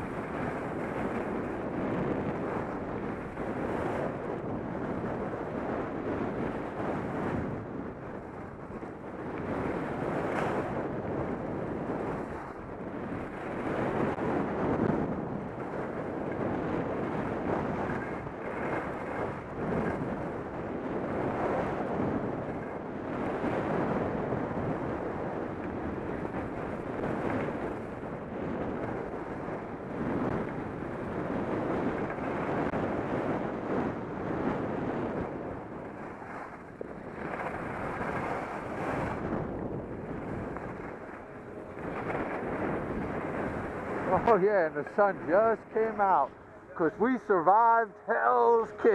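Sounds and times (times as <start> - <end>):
wind on microphone: 0.0 - 48.9.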